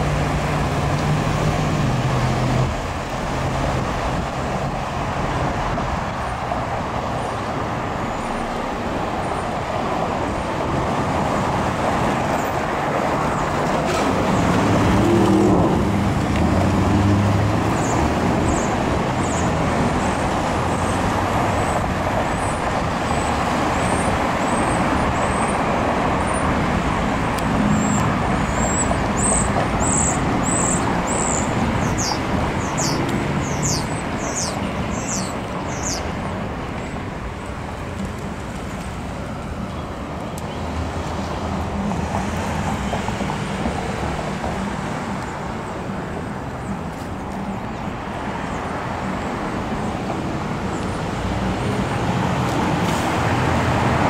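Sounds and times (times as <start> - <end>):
cars passing: 0.0 - 54.0
high bird chirps: 28.6 - 36.1.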